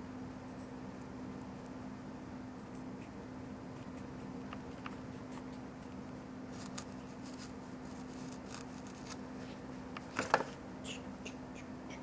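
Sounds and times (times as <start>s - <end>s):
steady low hum: 0.0s - 12.0s
paintbrush scraping paper: 6.5s - 9.2s.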